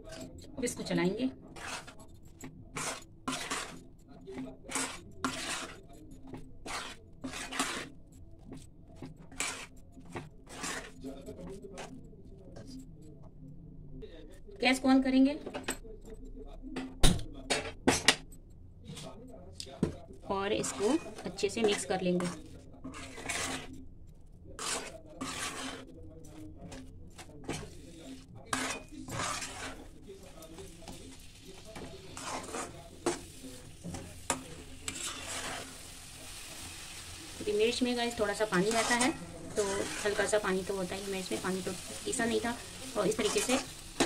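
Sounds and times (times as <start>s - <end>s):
metal spatula scraping a pan: 0.0s - 12.0s, 19.8s - 44.0s.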